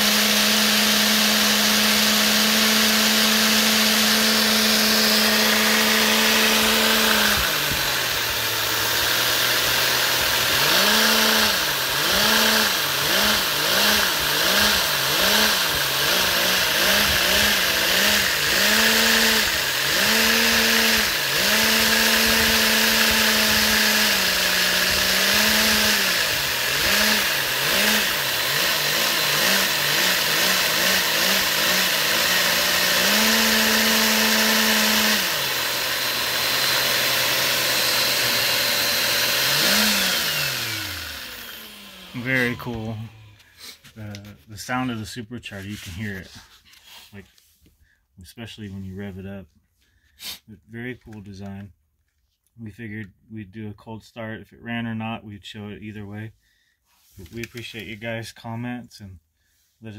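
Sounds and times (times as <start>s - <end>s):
small motor revving: 0.0s - 43.8s.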